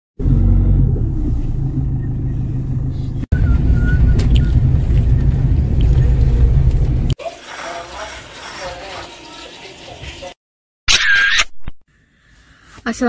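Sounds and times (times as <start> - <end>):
car driving through rain: 3.4 - 7.1.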